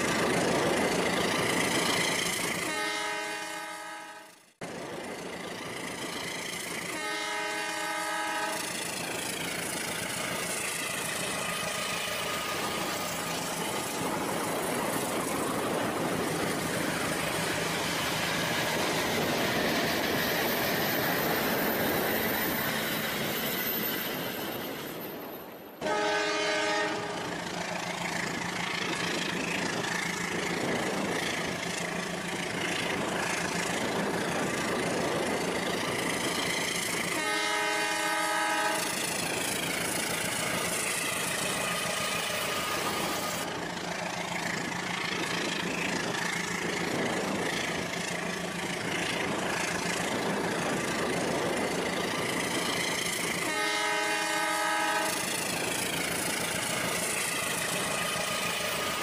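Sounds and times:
train horn blasts: 2.6s - 4.4s, 6.9s - 8.7s, 25.8s - 27.3s, 37.1s - 39.0s, 53.4s - 55.4s.

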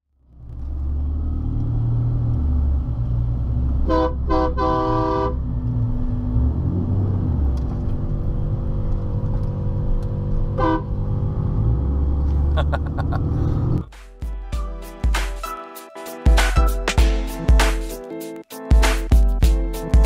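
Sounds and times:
engine and road drone: 0.1s - 13.9s
truck horn honking: 3.8s - 5.5s, 10.5s - 11.0s.

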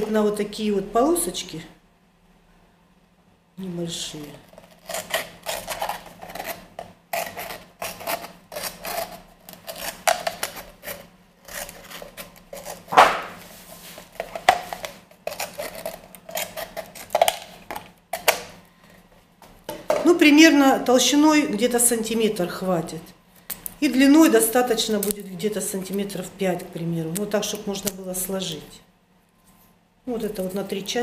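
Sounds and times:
scissors cutting plastic bottle: 4.5s - 6.6s, 7.2s - 13.2s, 14.2s - 18.5s.

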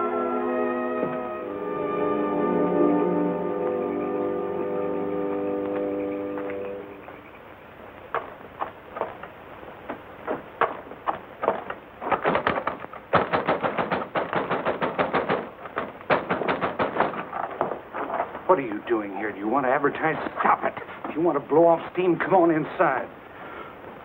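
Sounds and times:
fist banging on wooden door: 11.4s - 17.4s.

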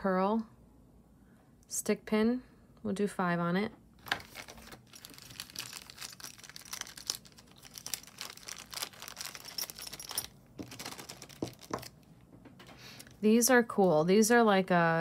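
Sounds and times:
plastic bag crinkling: 4.0s - 12.1s.

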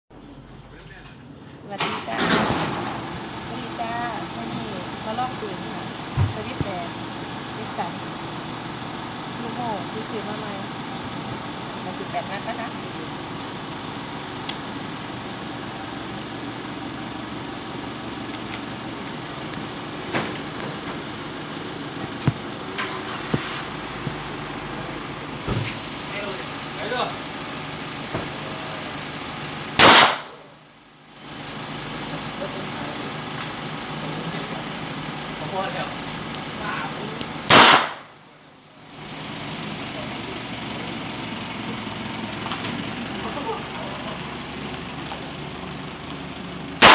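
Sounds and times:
revolver shot: 29.8s - 30.5s, 37.5s - 38.2s.

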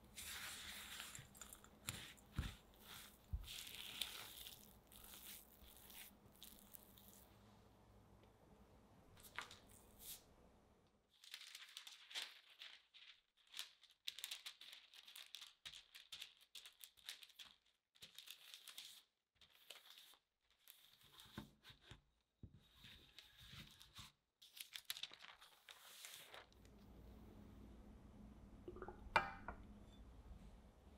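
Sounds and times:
parchment paper crinkling: 0.1s - 7.3s, 9.2s - 10.2s, 11.1s - 26.8s.

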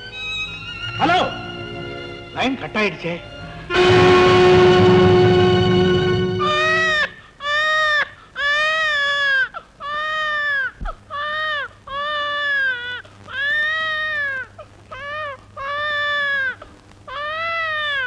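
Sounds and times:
infant crying: 6.4s - 18.0s.

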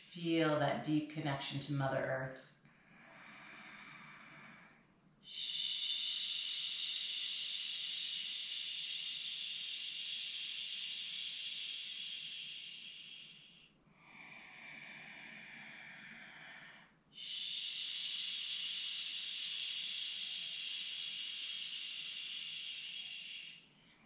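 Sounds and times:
woman inhaling through nose: 2.9s - 24.0s
woman exhaling through mouth: 5.3s - 23.6s.

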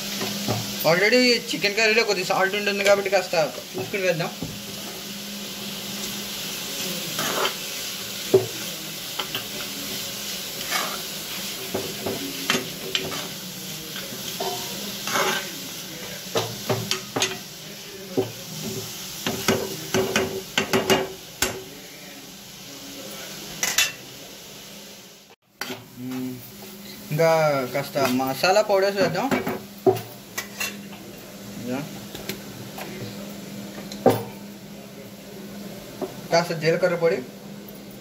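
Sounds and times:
vegetables sizzling in a frying pan: 0.0s - 38.0s
utensil scraping a pan: 7.2s - 7.6s, 10.6s - 11.1s, 14.0s - 15.6s.

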